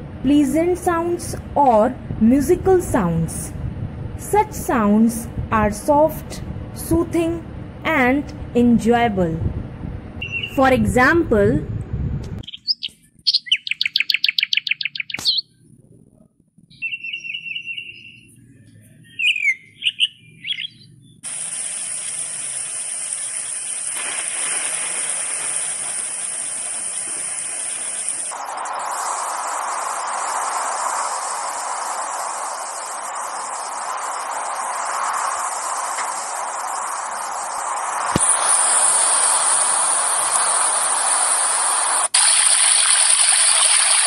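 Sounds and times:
songbird singing: 10.2 - 10.7, 12.4 - 15.5, 16.7 - 21.7
steady rain hiss: 21.2 - 44.0.

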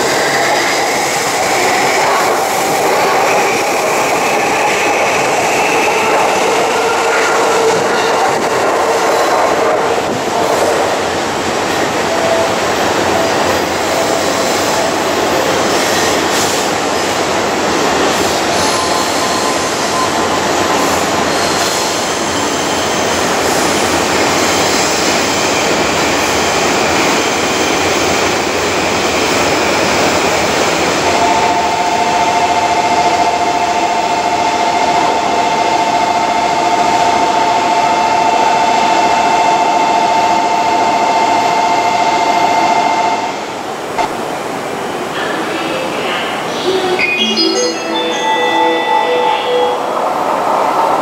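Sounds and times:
electric train rumbling: 0.0 - 51.0
steady high tones: 46.4 - 51.0.

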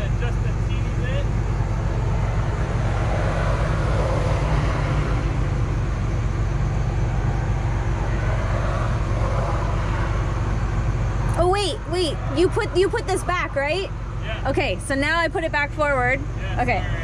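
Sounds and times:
diesel engine running steadily: 0.0 - 17.0.

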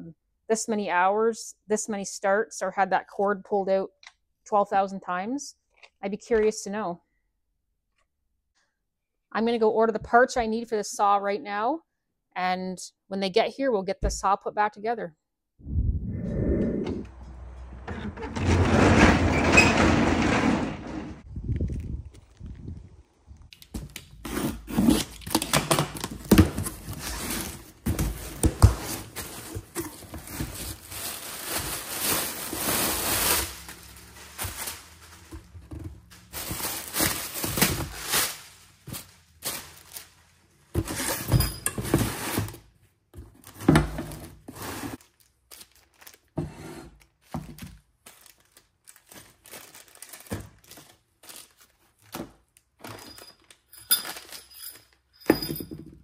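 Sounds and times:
packing tape tearing: 28.8 - 35.3
plastic bags crinkling: 28.9 - 40.5, 45.0 - 46.4, 47.8 - 55.0.

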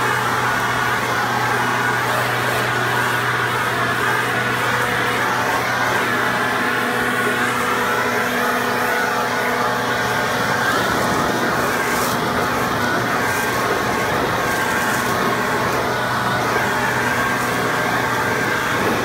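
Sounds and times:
leaf blower running: 0.0 - 19.0.

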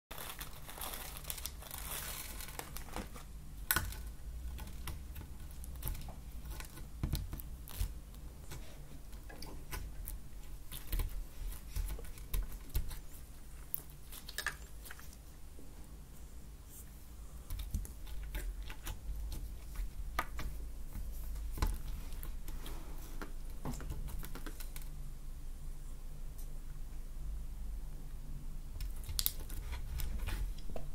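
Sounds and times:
plastic sachets crinkling: 0.1 - 4.8
steady low hum: 0.1 - 30.9.

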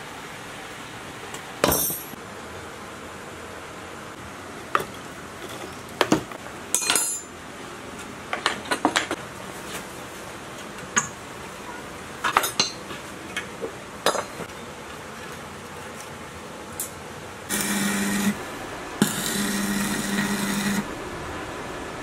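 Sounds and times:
arc welder buzzing and crackling: 17.5 - 22.0.

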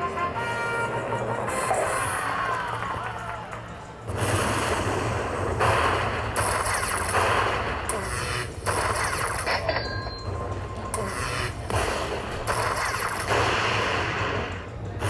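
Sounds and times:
slot machine crackling zaps: 4.0 - 14.7.

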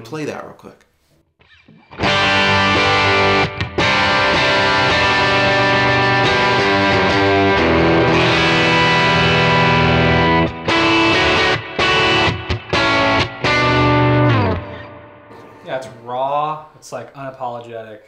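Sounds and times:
overdriven electric guitar chords: 1.4 - 15.6.

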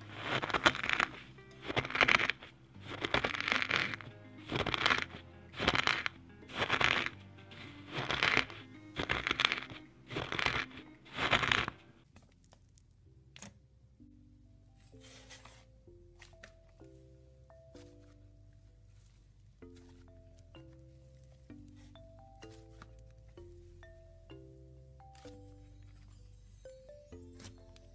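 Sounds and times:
soft background music: 0.0 - 27.9
pestle grinding crystals in mortar: 0.2 - 11.9.

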